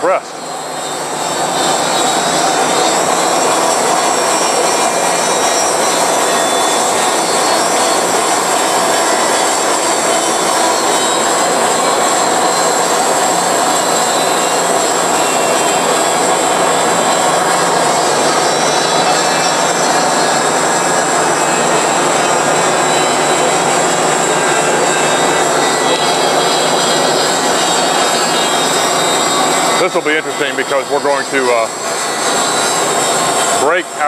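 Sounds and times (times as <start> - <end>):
high whine: 0.0 - 34.0
bandsaw cutting metal: 0.4 - 34.0.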